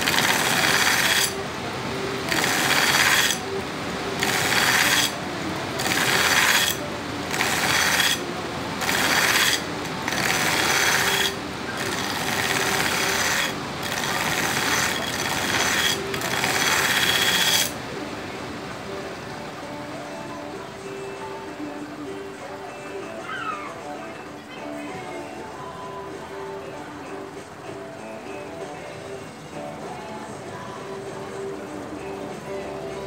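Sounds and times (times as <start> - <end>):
belt grinder running: 0.0 - 1.4, 2.2 - 17.8
knife blade grinding on belt grinder: 0.0 - 1.4, 2.2 - 17.8.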